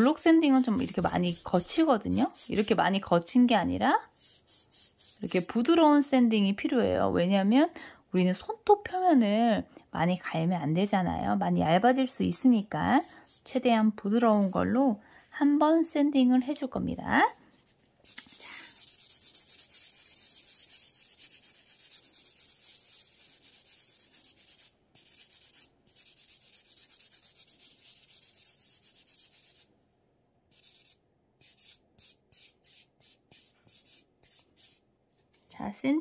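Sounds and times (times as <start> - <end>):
buffer sanding a fingernail: 0.0 - 2.8, 4.2 - 5.6, 13.0 - 13.6, 18.0 - 29.7, 30.5 - 34.8.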